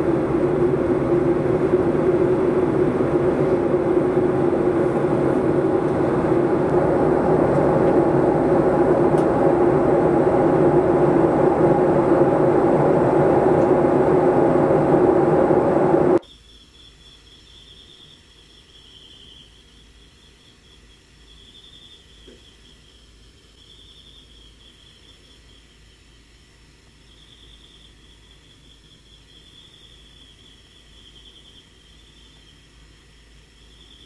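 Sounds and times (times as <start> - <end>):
airliner cabin rumble: 0.0 - 16.2
insect chirping: 16.2 - 34.0.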